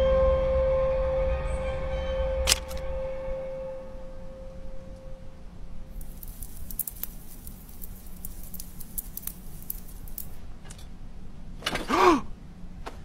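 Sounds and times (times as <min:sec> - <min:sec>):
light clicks and scratchy ticks: 0:05.9 - 0:10.9.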